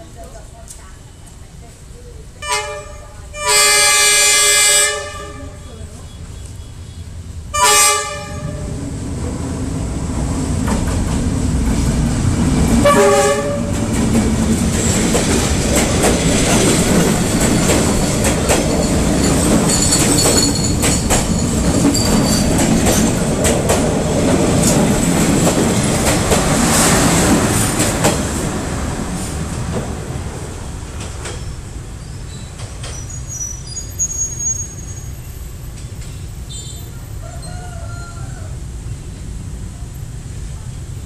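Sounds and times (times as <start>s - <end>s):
rumble of train carriages: 0.0s - 40.9s
train horn blast: 2.4s - 5.6s, 7.5s - 8.8s, 12.8s - 13.8s
wheels clacking over rail joints: 9.2s - 33.8s
wheels squealing: 14.8s - 23.3s, 31.2s - 37.8s.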